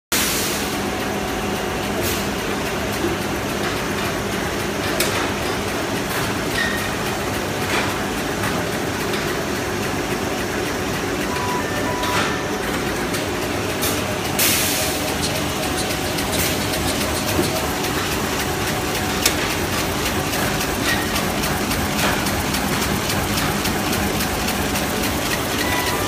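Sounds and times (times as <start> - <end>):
machines running with low hum: 0.5 - 26.0
sharp machine knock: 11.9 - 26.0.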